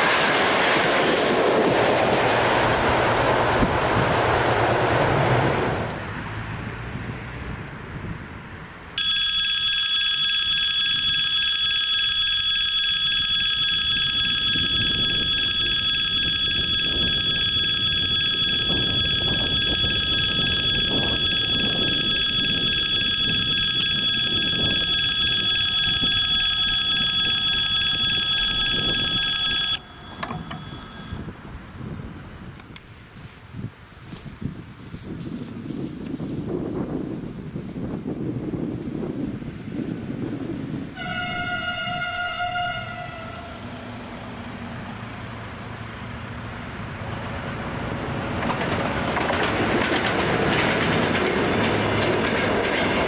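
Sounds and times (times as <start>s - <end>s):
passing train: 0.0s - 53.0s
level-crossing warning bell: 9.0s - 31.9s.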